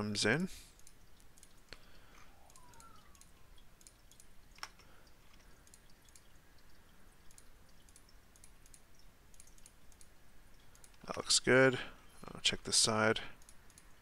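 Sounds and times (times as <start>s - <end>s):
keyboard and mouse clicking: 0.8s - 6.3s, 7.2s - 11.2s, 13.4s - 14.0s.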